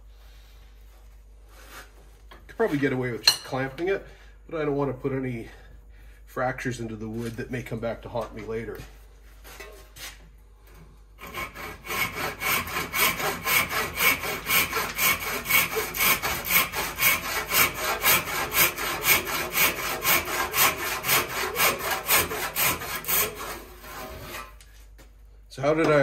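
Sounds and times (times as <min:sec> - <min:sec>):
handsaw cutting wood: 0:11.2 - 0:24.6.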